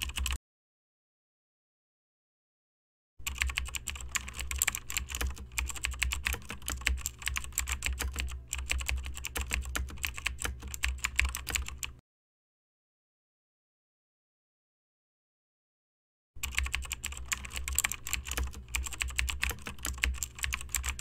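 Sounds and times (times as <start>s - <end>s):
keyboard typing: 0.0s - 0.4s, 3.2s - 12.0s, 16.4s - 21.0s.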